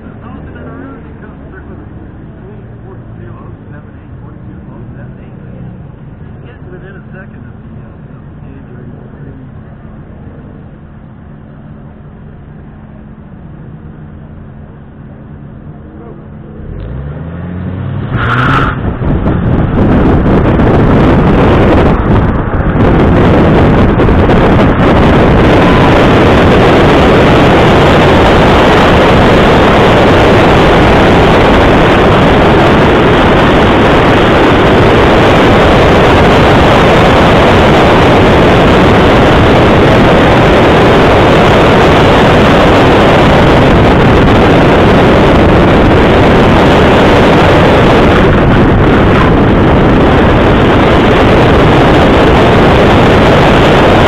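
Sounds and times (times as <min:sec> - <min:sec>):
car engine revving: 0:00.0 - 0:54.0
wind buffeting microphone: 0:17.8 - 0:54.0.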